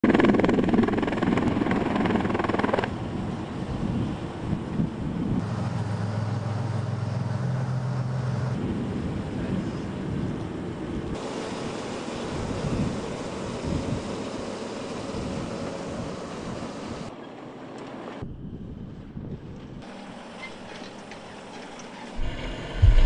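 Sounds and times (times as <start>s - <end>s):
low engine drone: 5.1s - 17.1s, 19.8s - 23.0s
loud engine noise: 5.2s - 10.2s, 11.1s - 17.1s, 19.8s - 23.0s.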